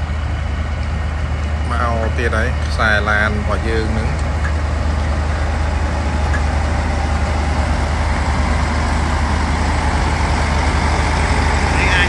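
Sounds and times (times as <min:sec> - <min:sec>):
truck diesel engine droning: 0:00.0 - 0:12.0.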